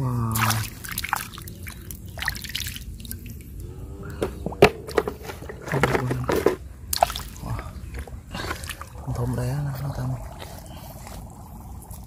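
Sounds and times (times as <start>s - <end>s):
hands squelching through wet mud: 0.3s - 3.5s, 6.9s - 12.0s.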